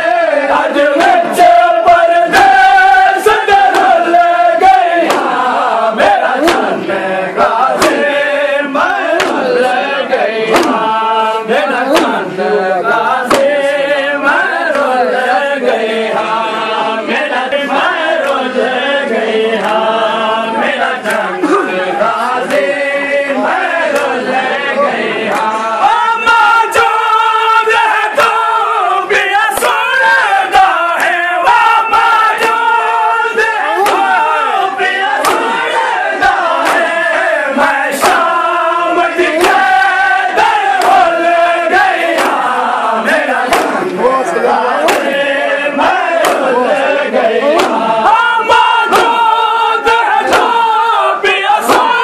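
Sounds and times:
men chanting in unison: 0.0s - 52.0s
hands slapping chests: 0.8s - 6.8s, 7.4s - 12.3s, 12.9s - 15.0s, 17.7s - 18.6s, 20.9s - 21.8s, 23.4s - 24.4s, 25.3s - 27.0s, 29.5s - 32.8s, 33.4s - 44.1s, 44.8s - 46.8s, 47.5s - 50.8s, 51.6s - 52.0s.

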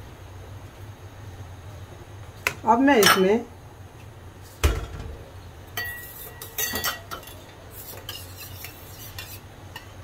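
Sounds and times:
spoon clinking metal bowl: 5.8s - 7.4s.

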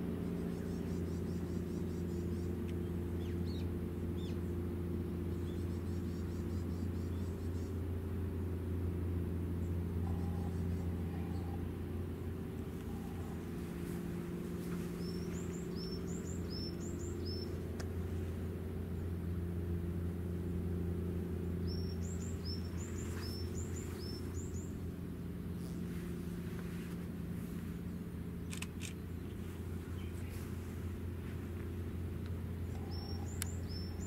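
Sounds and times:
low mechanical hum: 0.0s - 34.0s
songbird chirping: 0.4s - 4.5s, 9.6s - 11.7s, 12.3s - 18.2s, 21.4s - 24.9s, 27.9s - 34.0s
faint clicks: 32.2s - 33.6s.

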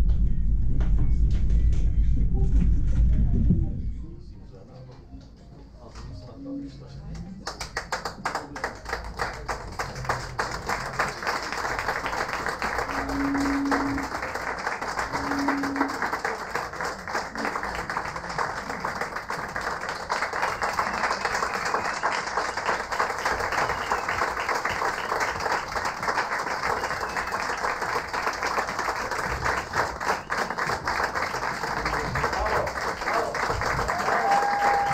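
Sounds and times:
audience applauding: 7.4s - 34.9s
short low held notes: 12.8s - 14.3s, 15.1s - 16.0s.

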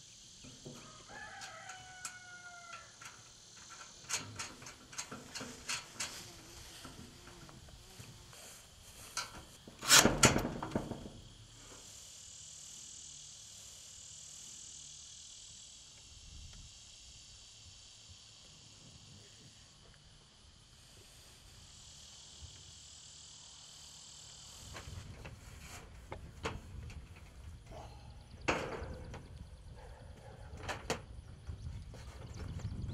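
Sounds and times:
insects droning: 0.0s - 32.9s
steel panels knocking and rattling: 3.0s - 6.2s, 9.2s - 11.2s, 28.5s - 29.3s.

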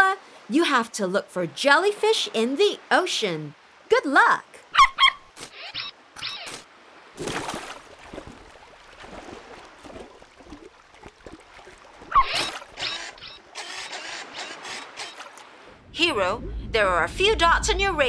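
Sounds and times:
soft water noises: 0.0s - 17.0s
squeaky animal call: 4.8s - 6.6s, 12.1s - 15.2s.

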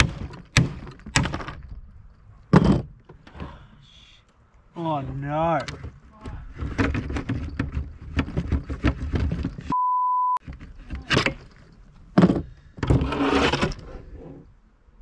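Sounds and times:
high censor bleep: 9.7s - 10.4s.

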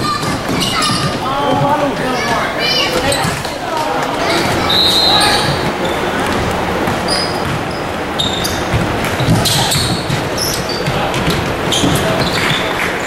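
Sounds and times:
sneakers squeaking: 0.0s - 13.0s
basketball bouncing on hardwood: 5.4s - 7.7s, 8.4s - 12.3s.

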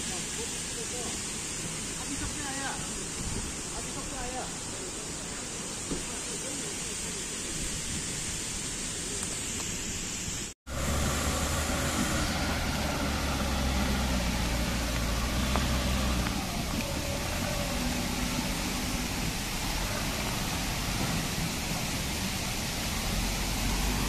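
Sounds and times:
water running across road: 0.0s - 24.0s
diesel engine running: 10.7s - 24.0s.

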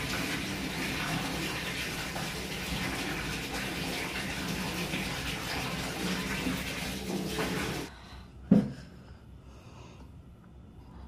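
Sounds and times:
water running from a tap: 0.0s - 7.9s.

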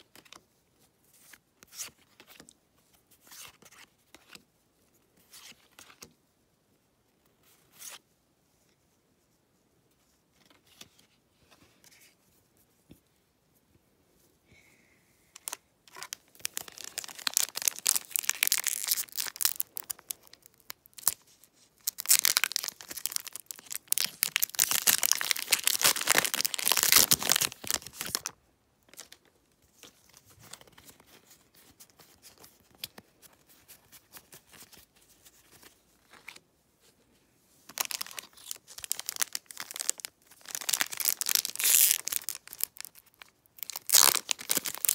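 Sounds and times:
foil wrapper crinkling and tearing: 15.4s - 21.2s, 21.8s - 29.1s, 37.7s - 44.9s.

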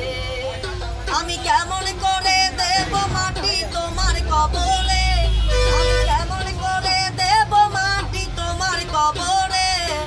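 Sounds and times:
plucked one-string lute: 0.0s - 4.7s
bus rumble: 0.0s - 10.0s
man singing: 0.0s - 10.0s.

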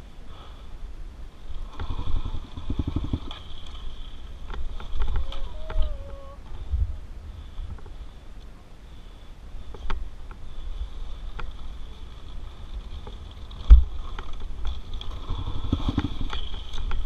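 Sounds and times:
dirt bike knocks and rattles: 1.7s - 5.8s, 12.9s - 17.0s.

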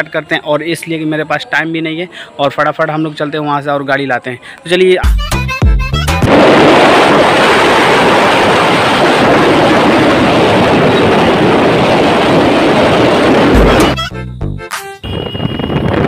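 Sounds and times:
wind buffeting microphone: 6.3s - 13.9s, 15.0s - 16.0s.

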